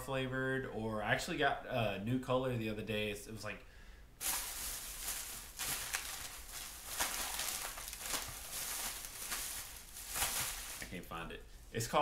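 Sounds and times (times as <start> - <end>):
plastic bag rustling and crinkling: 4.2 - 11.2.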